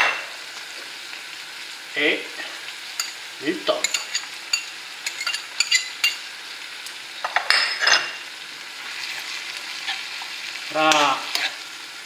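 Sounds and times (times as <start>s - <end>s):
food sizzling in frying pan: 0.0s - 12.0s.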